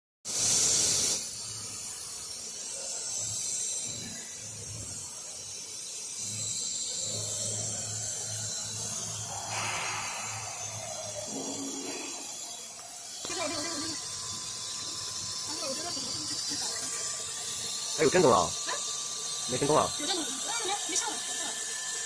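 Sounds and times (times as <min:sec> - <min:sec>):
machine hiss: 0:00.3 - 0:22.0
loud rushing noise: 0:09.3 - 0:12.7.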